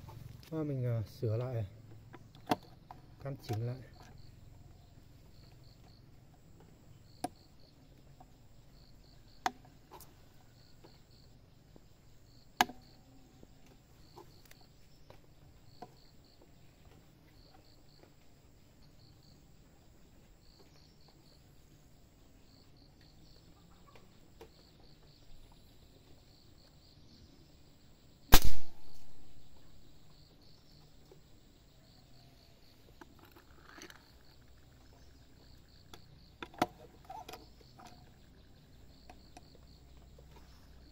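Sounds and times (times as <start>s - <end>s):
insects chirping: 0.0s - 40.9s
rifle handling clicks: 28.3s - 29.2s
silenced air rifle shot: 28.3s - 29.4s.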